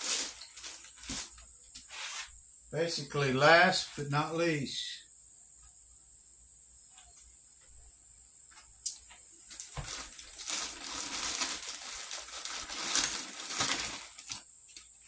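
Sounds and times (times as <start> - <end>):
plastic bag rustling and crinkling: 0.0 - 2.3, 9.5 - 14.8.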